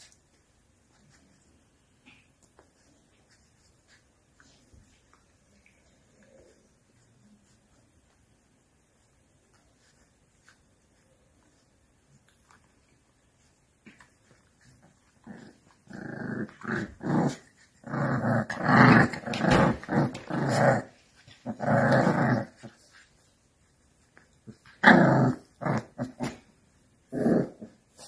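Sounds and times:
puppies growling: 14.3 - 23.0, 24.5 - 28.0.

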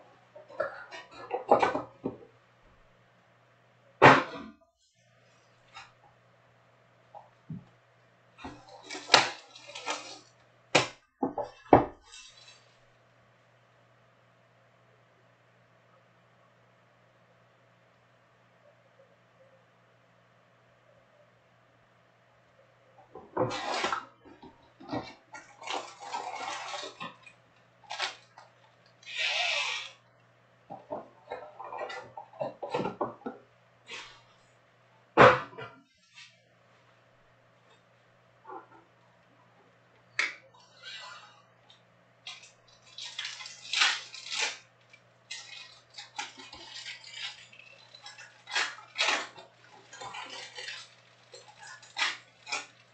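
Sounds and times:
plastic wrap and foil crinkling: 8.4 - 10.5, 11.5 - 12.9, 25.4 - 30.0, 42.2 - 52.9.

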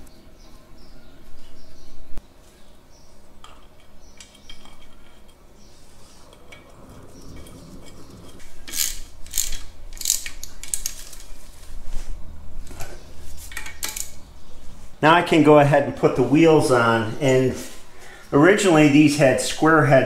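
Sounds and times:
socket ratchet clicking: 8.7 - 11.0.

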